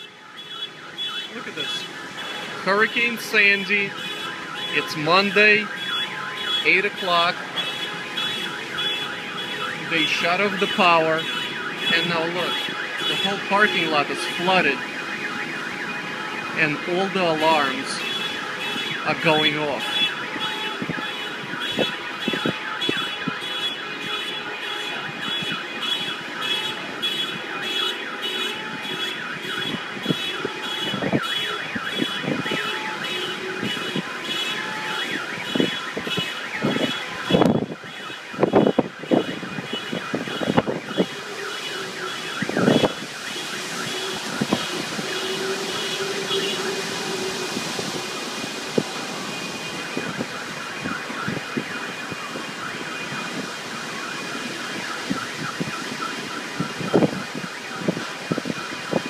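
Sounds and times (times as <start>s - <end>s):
car alarms: 0.0s - 59.0s
rushing wind hiss: 39.5s - 59.0s.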